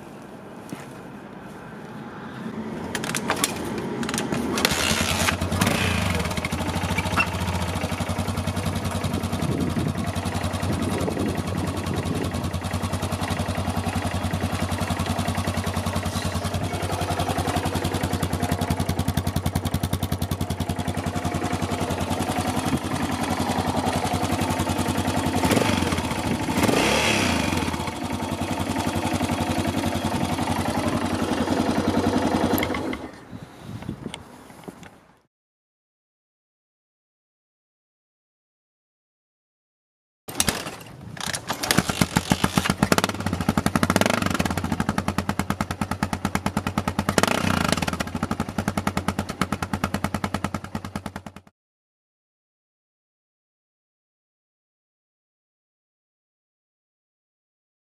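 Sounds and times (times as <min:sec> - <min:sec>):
motorcycle engine idling: 0:03.0 - 0:33.1, 0:41.6 - 0:51.5
engine revving: 0:03.1 - 0:33.0, 0:41.3 - 0:45.5, 0:46.8 - 0:49.0.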